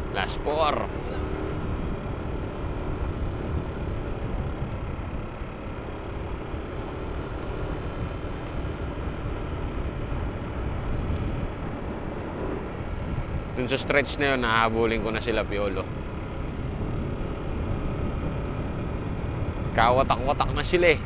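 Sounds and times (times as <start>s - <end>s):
bicycle road noise: 0.0s - 21.0s
wind buffeting microphone: 9.1s - 21.0s.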